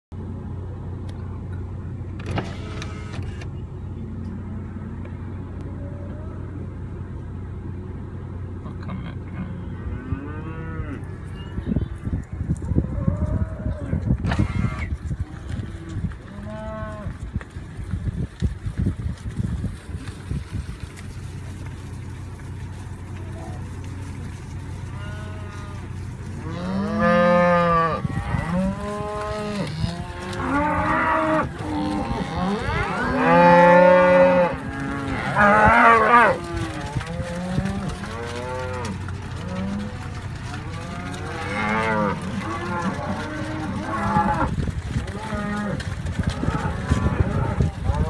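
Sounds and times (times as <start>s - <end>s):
low steady hum: 0.1s - 48.0s
cattle mooing: 8.8s - 11.2s, 13.0s - 17.2s, 24.8s - 48.0s.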